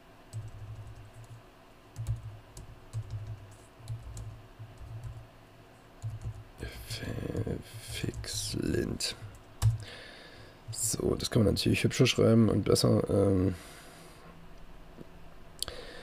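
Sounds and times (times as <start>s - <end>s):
typing on keyboard: 0.3s - 1.4s, 2.0s - 5.2s, 6.0s - 6.5s, 9.3s - 9.8s.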